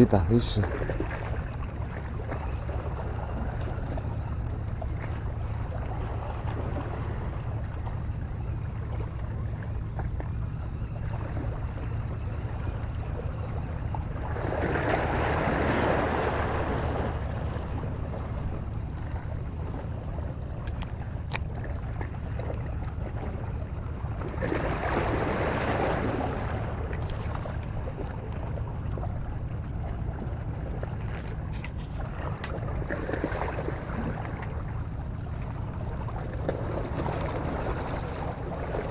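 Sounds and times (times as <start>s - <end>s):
steady low hum: 0.0s - 38.9s
water washing around boat: 0.0s - 38.9s
wind-blown splashing: 10.5s - 38.9s.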